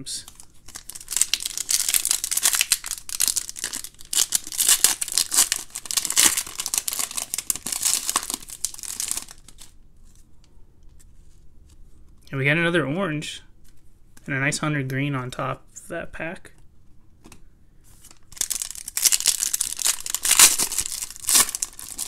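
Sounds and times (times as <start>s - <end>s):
foil wrapper tearing and crinkling: 0.2s - 9.8s, 18.1s - 22.0s.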